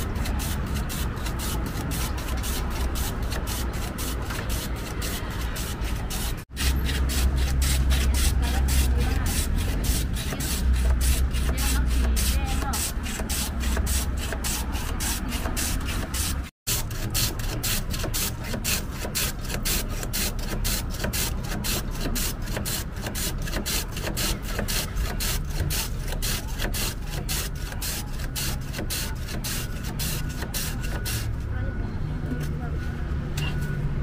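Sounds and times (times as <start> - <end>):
ice rasping on plane blade: 0.0 - 31.3.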